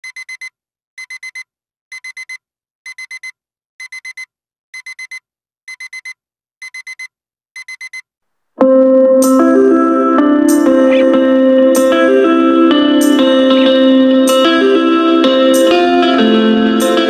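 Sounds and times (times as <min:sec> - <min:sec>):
music: 0:08.6 - 0:17.0.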